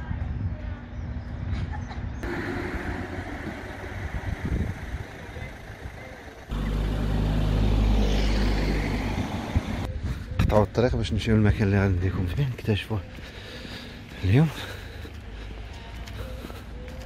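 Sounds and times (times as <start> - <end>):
car noise: 2.2 - 9.9
steady low engine hum: 2.2 - 10.1.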